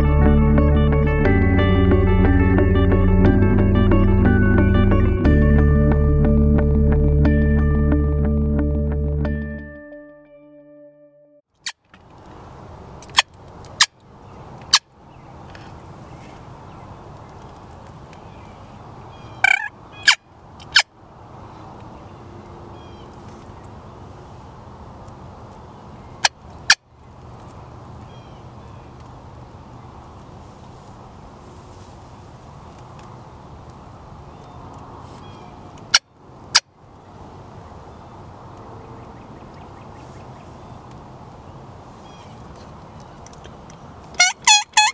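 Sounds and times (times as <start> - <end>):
turkey calling: 19.2 - 20.9, 44.2 - 44.9
turkey clucks: 19.4 - 20.8
small birds chirping: 25.0 - 30.4, 32.1 - 36.2, 37.6 - 44.9.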